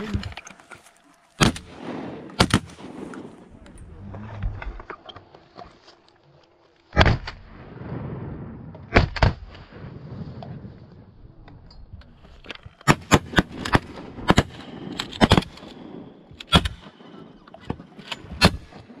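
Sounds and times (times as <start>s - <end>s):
shotgun blasts: 1.4s - 3.6s, 7.0s - 7.6s, 8.8s - 9.8s, 12.8s - 19.0s.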